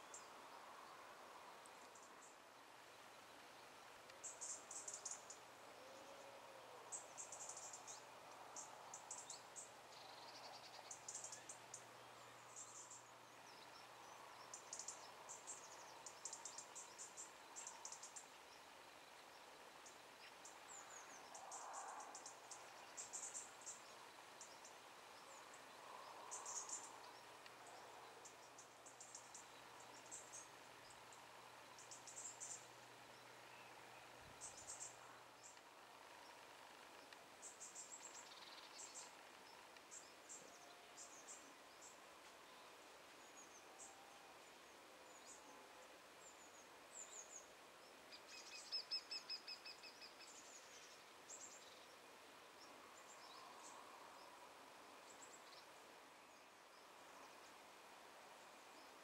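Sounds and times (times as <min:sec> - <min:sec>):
insects chirping: 0:00.0 - 0:06.0, 0:06.9 - 0:45.4.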